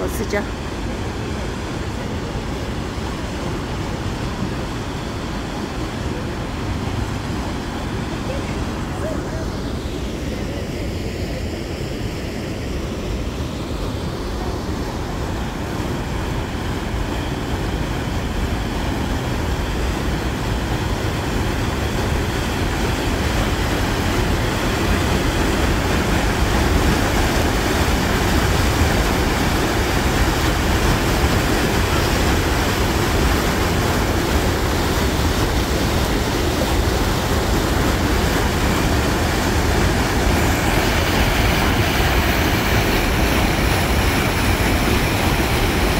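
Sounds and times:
water rushing down concrete channel: 13.7 - 45.9.

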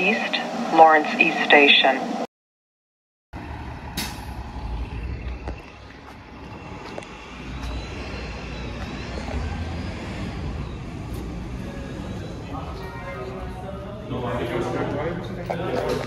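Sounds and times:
road vehicles: 3.3 - 16.0
bus engine rumble: 3.4 - 16.0.

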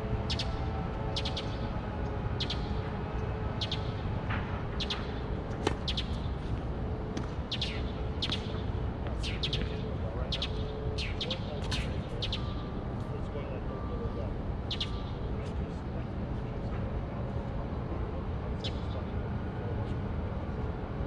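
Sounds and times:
bird chirping: 0.3 - 1.6, 2.4 - 2.8, 3.6 - 4.0, 9.2 - 12.7, 14.7 - 15.2.

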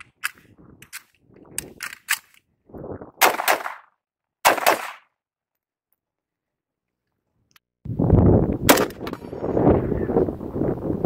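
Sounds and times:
rifle shots: 3.2 - 5.0, 8.7 - 9.2.

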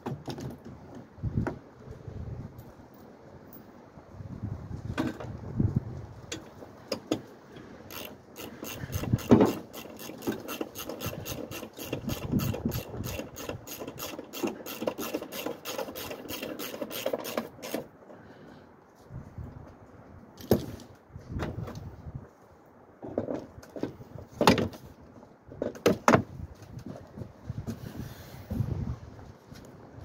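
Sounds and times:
hand ratchet clicking: 7.9 - 17.8.

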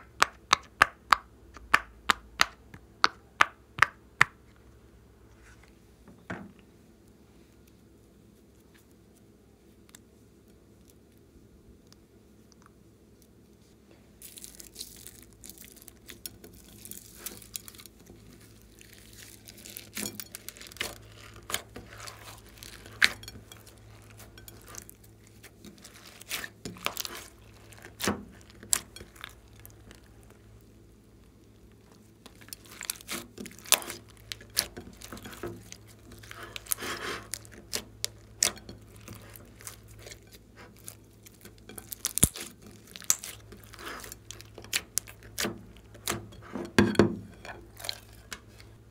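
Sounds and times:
slime crackling and squelching: 14.2 - 46.4.

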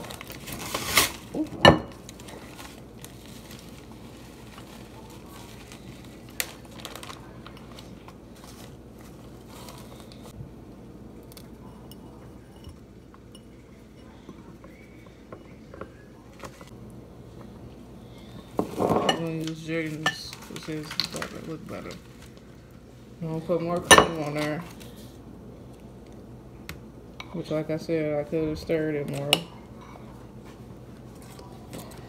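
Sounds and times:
plastic bag crinkling: 0.0 - 10.3, 18.7 - 22.6.

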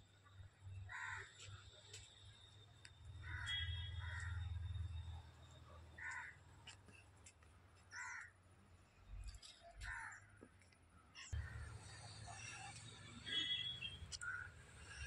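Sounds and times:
crow cawing: 0.9 - 1.4, 3.2 - 4.6, 6.0 - 6.4, 7.9 - 8.3, 9.8 - 10.3, 14.2 - 14.5.

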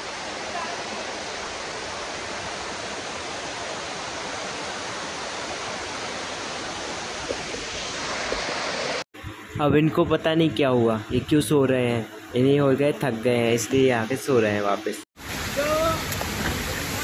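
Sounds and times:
waterfall rushing over rocks: 0.0 - 9.0, 15.2 - 17.0.

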